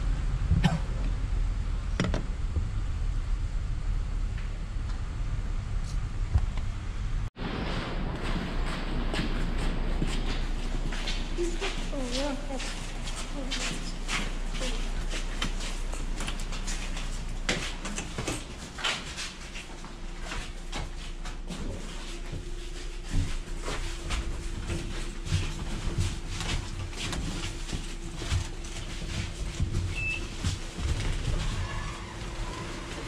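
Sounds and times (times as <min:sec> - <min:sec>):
steady low hum: 0:00.0 - 0:33.0
footsteps and scuffs: 0:08.2 - 0:33.0.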